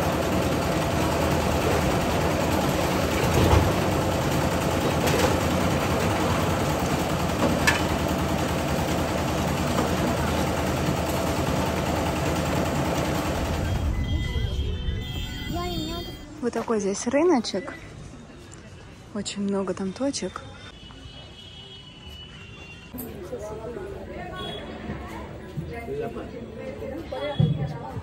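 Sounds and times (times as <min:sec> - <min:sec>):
concrete mixer engine running: 0:00.0 - 0:15.2.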